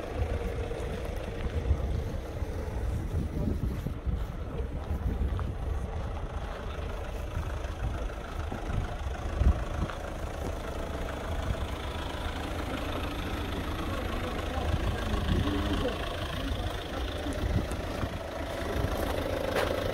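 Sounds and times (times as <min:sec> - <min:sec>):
wind buffeting microphone: 0:00.0 - 0:10.4, 0:14.5 - 0:19.0
car engine idling: 0:00.0 - 0:19.9.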